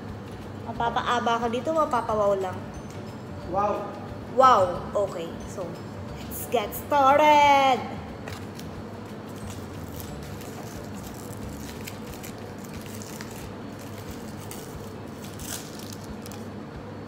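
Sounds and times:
low room hum: 0:00.0 - 0:17.0
plastic wrapper crinkling: 0:09.4 - 0:16.5.

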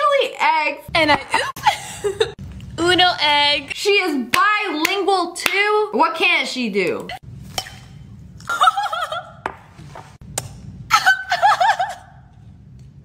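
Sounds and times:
woman giggling: 0:01.3 - 0:02.4, 0:10.9 - 0:12.2.

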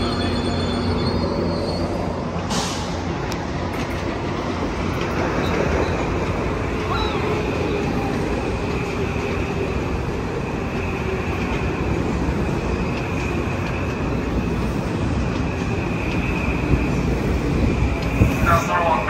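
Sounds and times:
train rumbling: 0:00.0 - 0:19.0.

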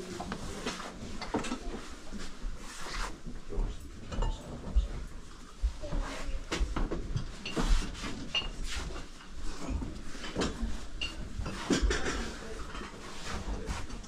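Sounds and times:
dishes and glassware clinking: 0:04.0 - 0:05.0, 0:07.0 - 0:14.0.

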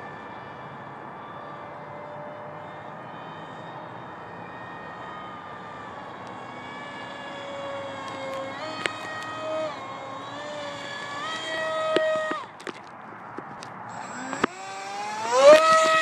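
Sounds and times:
electric motor propeller whine: 0:00.0 - 0:12.8, 0:13.8 - 0:16.0.

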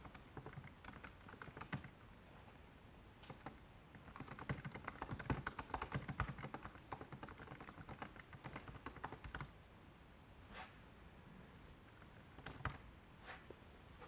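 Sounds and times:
typing on computer keyboard: 0:00.0 - 0:02.0, 0:03.2 - 0:09.5, 0:12.0 - 0:12.8.

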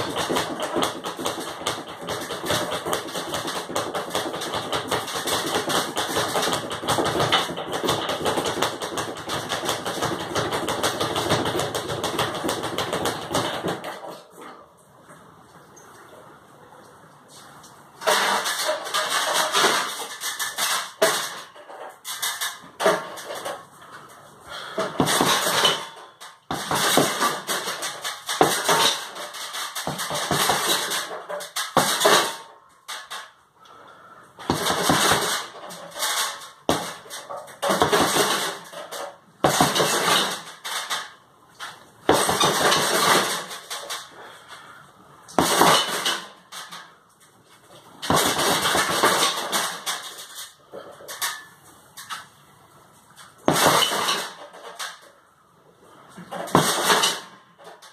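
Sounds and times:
fists striking punching bag: 0:00.0 - 0:13.9, 0:24.8 - 0:25.8, 0:26.5 - 0:29.0, 0:29.8 - 0:31.0, 0:34.4 - 0:35.6, 0:36.7 - 0:38.6, 0:39.4 - 0:40.3, 0:42.1 - 0:43.5, 0:45.4 - 0:46.0.

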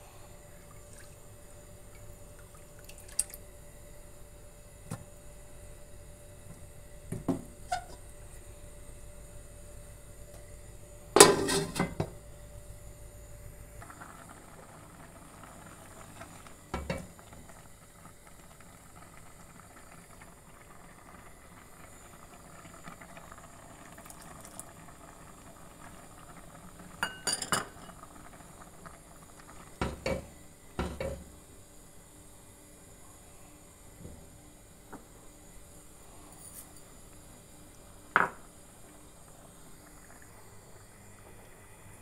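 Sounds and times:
metal pot lid clanking: 0:11.2 - 0:12.0.

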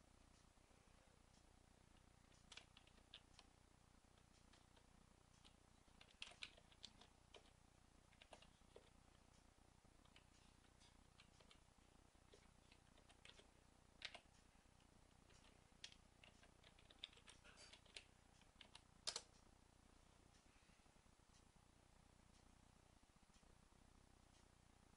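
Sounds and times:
typing on computer keyboard: 0:02.3 - 0:03.5, 0:05.4 - 0:09.0, 0:11.1 - 0:11.6, 0:12.3 - 0:14.3, 0:15.2 - 0:19.3.

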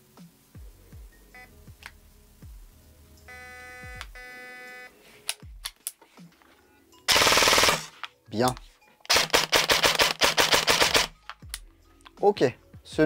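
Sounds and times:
sharp clicks: 0:08.4 - 0:11.6.

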